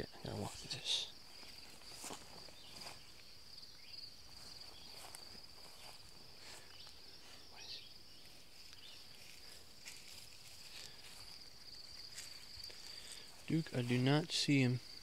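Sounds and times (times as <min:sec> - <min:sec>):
high-pitched insect chorus: 0:00.0 - 0:15.0
footsteps swishing through grass: 0:01.3 - 0:03.2, 0:04.3 - 0:13.9.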